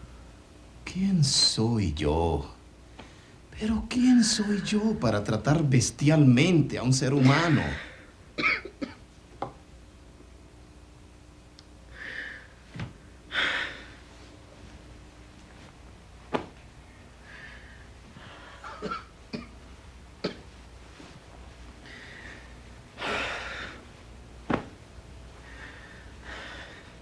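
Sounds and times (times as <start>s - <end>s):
soft knocks on bed: 16.3s - 16.6s, 24.5s - 24.8s
man breathing heavily and sighing: 25.4s - 27.0s.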